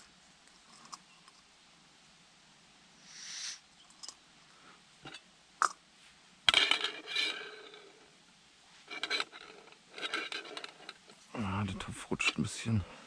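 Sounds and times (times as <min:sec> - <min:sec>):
pot rattling on metal supports: 0:08.9 - 0:11.2.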